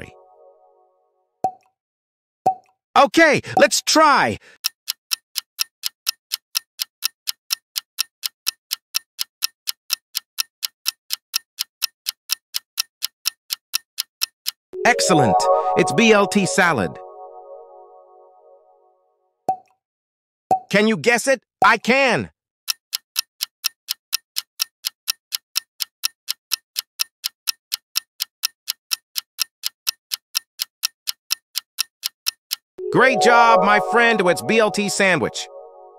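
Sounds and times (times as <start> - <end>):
fast clock ticking: 3.5 - 14.6, 22.7 - 32.7.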